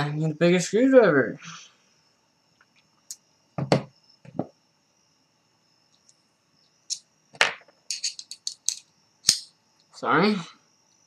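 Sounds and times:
dull knocks on desk: 3.6s - 4.5s.

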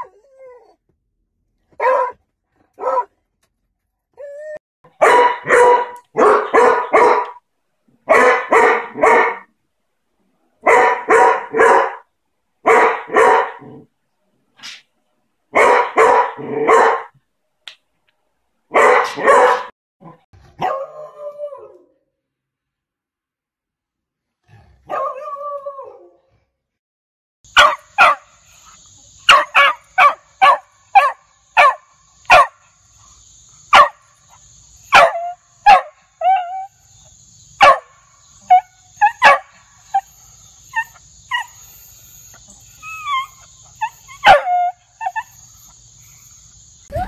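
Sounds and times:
dog barking: 1.8s - 2.2s, 2.8s - 3.1s, 5.0s - 7.4s, 8.1s - 9.5s, 10.6s - 12.0s, 12.6s - 13.8s, 15.5s - 17.2s, 18.7s - 19.7s, 20.6s - 21.0s, 24.9s - 25.4s, 27.6s - 28.3s, 29.3s - 32.6s, 33.7s - 34.0s, 34.9s - 36.7s, 37.6s - 39.6s, 44.2s - 44.8s.

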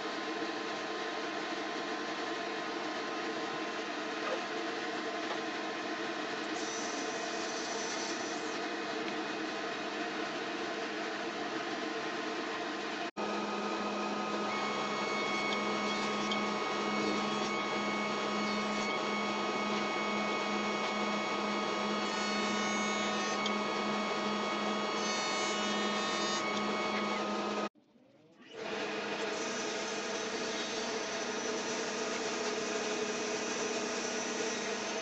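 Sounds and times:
table saw running: 4.9s - 27.7s, 28.5s - 35.0s
jointer humming: 13.2s - 27.7s.

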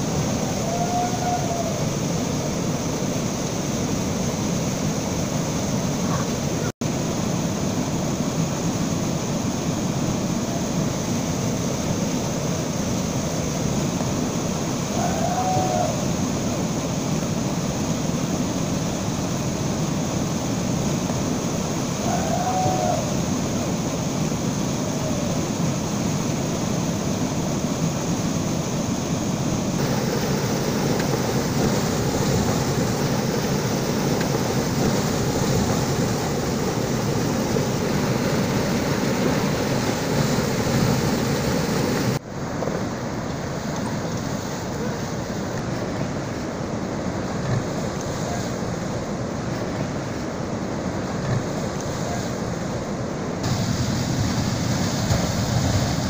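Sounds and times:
water rushing over a weir: 0.0s - 56.0s.

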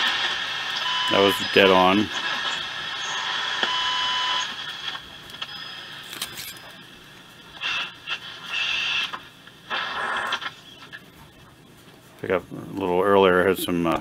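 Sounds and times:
radio static and hiss: 0.0s - 14.0s
snatches of radio signal: 0.0s - 14.0s
thin steady whistles: 2.5s - 4.6s.

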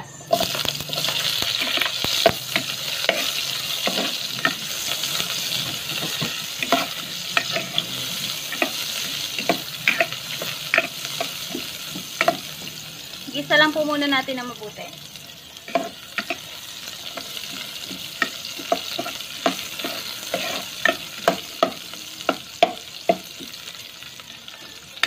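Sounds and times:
onions sizzling in hot oil: 0.0s - 25.0s
metal utensil scraping a pot: 0.3s - 12.5s, 18.9s - 21.4s.

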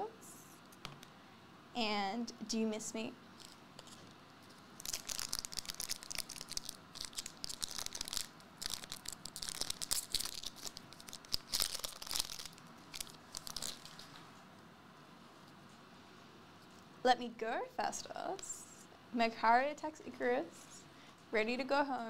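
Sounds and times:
foil wrapper tearing and crinkling: 4.8s - 14.1s.

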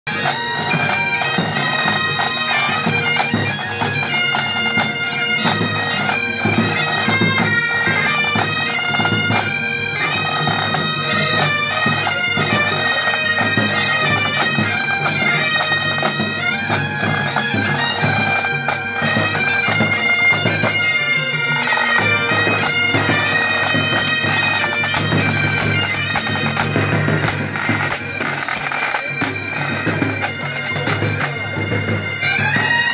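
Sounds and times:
bagpipes with drone: 0.1s - 32.9s.

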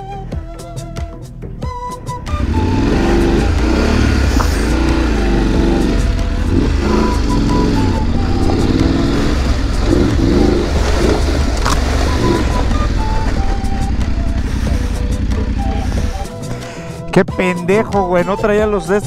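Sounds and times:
motorcycle engine revving: 2.2s - 17.1s.

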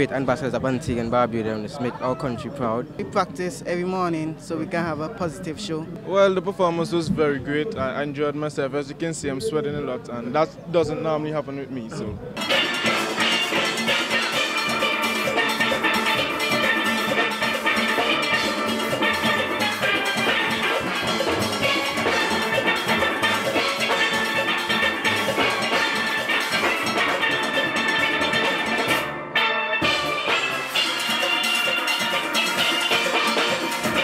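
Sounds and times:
drum kit: 12.4s - 29.1s, 29.8s - 34.0s
steel pans playing melody: 12.4s - 34.0s.

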